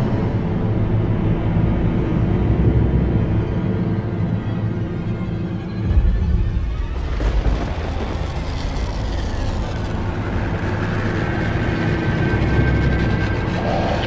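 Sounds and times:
background music: 0:00.0 - 0:14.0
thunder rumbling: 0:05.9 - 0:14.0.

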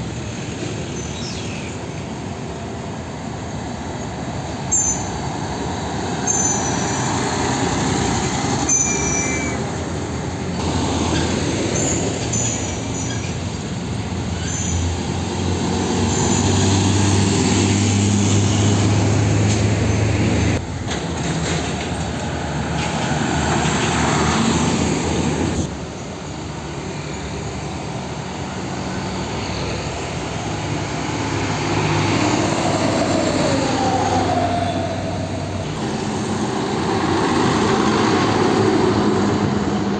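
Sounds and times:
diesel trucks driving past: 0:00.0 - 0:39.9
tyre and traffic noise: 0:00.0 - 0:39.9.

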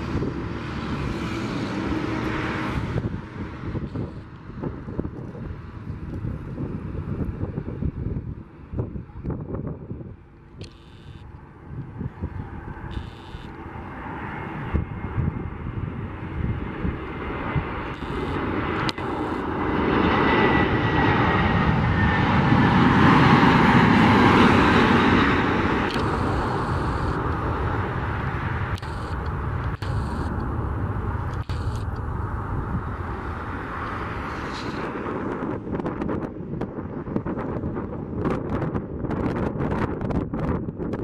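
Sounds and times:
jet airliner approaching: 0:00.0 - 0:41.0
faint high whine: 0:10.6 - 0:11.5, 0:12.8 - 0:13.8, 0:17.9 - 0:19.5, 0:25.9 - 0:27.4, 0:28.7 - 0:30.6, 0:31.4 - 0:32.3.

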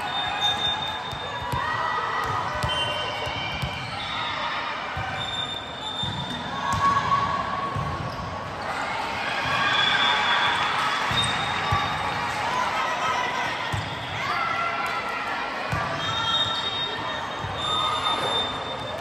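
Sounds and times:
shoe squeaks: 0:00.0 - 0:01.4, 0:05.2 - 0:06.6, 0:16.0 - 0:19.0
crowd noise hum: 0:00.0 - 0:19.0.

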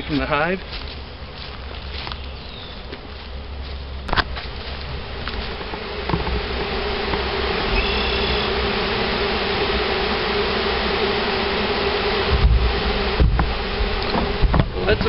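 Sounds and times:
bees buzzing: 0:00.0 - 0:15.0.

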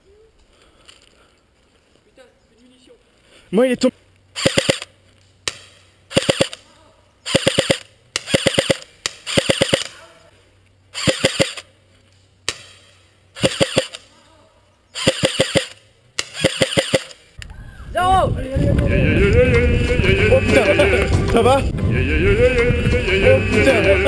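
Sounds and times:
airsoft gun full-auto bursts: 0:04.4 - 0:04.9, 0:06.1 - 0:06.6, 0:07.2 - 0:10.0, 0:11.0 - 0:11.6, 0:13.4 - 0:14.0, 0:15.0 - 0:17.2.

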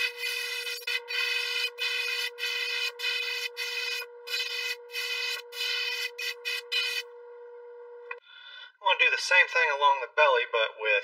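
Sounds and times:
airbrush hissing in bursts: 0:00.0 - 0:07.0
faint steady hum: 0:00.0 - 0:09.5.

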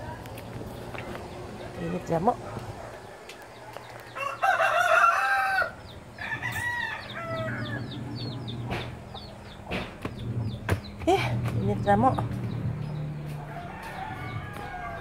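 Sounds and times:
rooster crowing: 0:04.1 - 0:08.1, 0:13.3 - 0:15.0.

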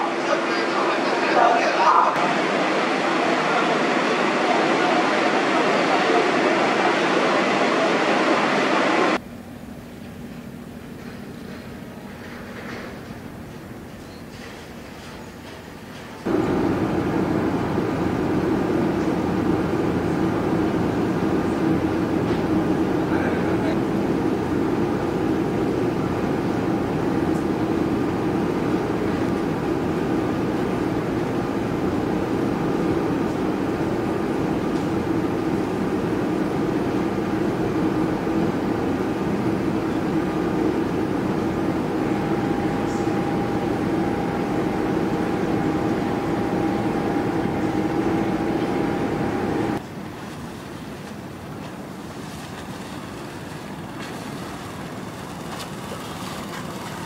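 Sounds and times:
ship engine rumble: 0:00.0 - 0:57.0
water sound: 0:16.3 - 0:57.0.

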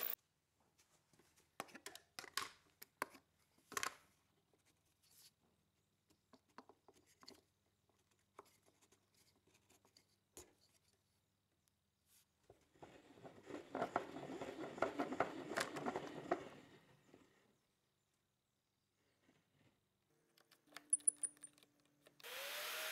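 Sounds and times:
drill bit cutting into wood: 0:22.2 - 0:22.9.

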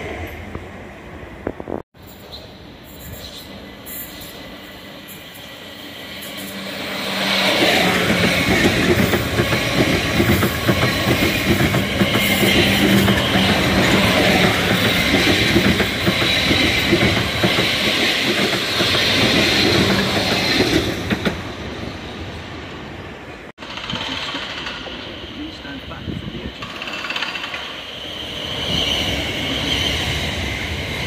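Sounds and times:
train low hum: 0:00.0 - 0:31.0
train wheels clattering over rail joints: 0:07.8 - 0:21.4, 0:23.6 - 0:25.1, 0:26.6 - 0:27.8.

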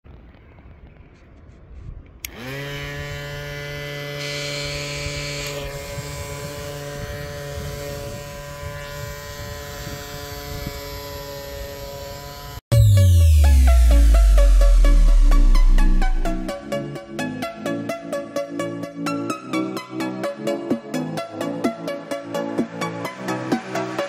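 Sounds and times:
small electric motor whine: 0:02.2 - 0:12.6.

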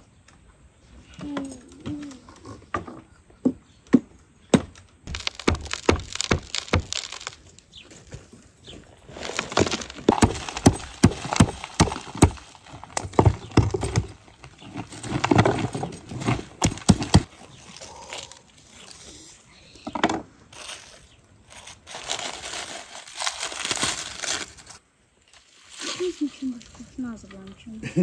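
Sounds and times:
cleaver knocking into clay crust: 0:03.9 - 0:07.4, 0:09.6 - 0:12.4
dried mud cracking and crumbling: 0:04.6 - 0:19.0, 0:20.5 - 0:27.8.

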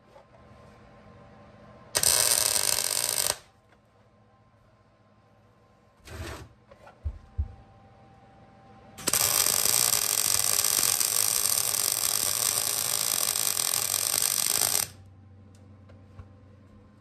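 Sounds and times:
welding arc crackling: 0:02.0 - 0:03.5, 0:09.0 - 0:15.0.

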